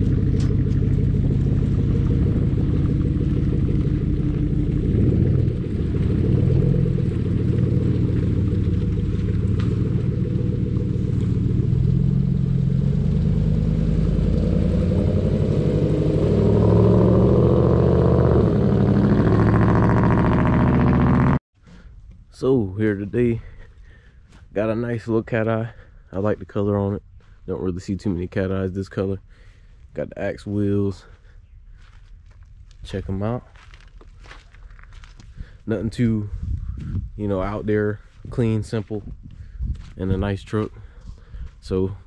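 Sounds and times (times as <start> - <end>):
pickup truck engine revving: 0.0 - 21.4.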